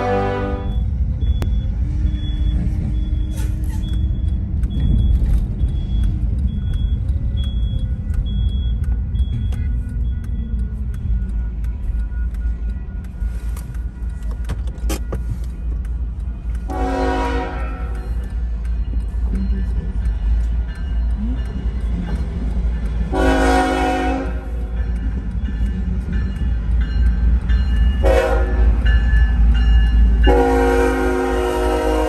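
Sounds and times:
train horn: 0:00.0 - 0:00.9, 0:16.7 - 0:18.0, 0:23.1 - 0:24.6, 0:28.0 - 0:28.8, 0:30.2 - 0:32.0
high beep: 0:00.6 - 0:11.3
car engine and road rumble: 0:00.6 - 0:31.3.

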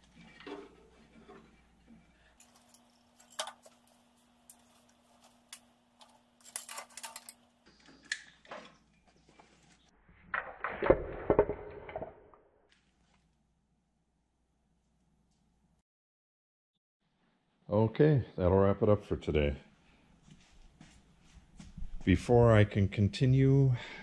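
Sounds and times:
clicks and rattles of wiring: 0:02.4 - 0:09.5
clatter on concrete floor: 0:10.3 - 0:12.4.

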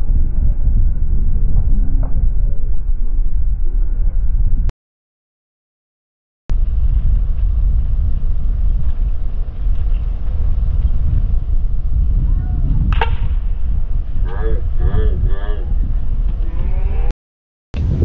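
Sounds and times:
wind rumbling on microphone: 0:00.0 - 0:04.7, 0:06.5 - 0:17.1, 0:17.7 - 0:18.0
bat striking ball ping: 0:12.9 - 0:13.5.

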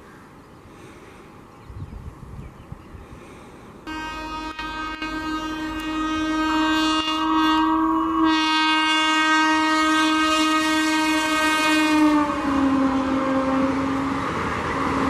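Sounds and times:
train rumbling: 0:03.1 - 0:15.0
train horn long blast: 0:03.9 - 0:15.0.

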